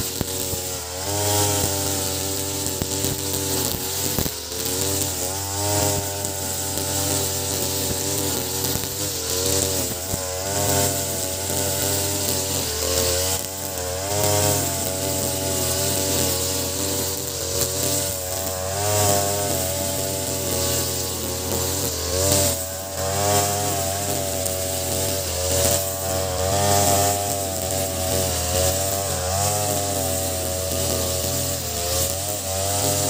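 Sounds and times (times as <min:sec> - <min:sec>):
brush cutter engine running: 0:00.0 - 0:33.0
nylon line cutting grass: 0:00.0 - 0:33.0.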